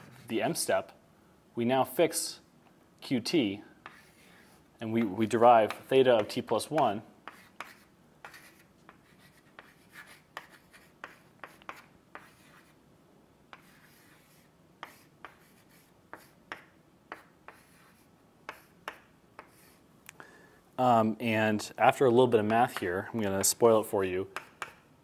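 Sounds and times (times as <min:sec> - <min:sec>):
chalk tapping and scratching: 0:00.0 - 0:00.6, 0:03.8 - 0:12.8, 0:13.5 - 0:19.8, 0:22.4 - 0:24.9.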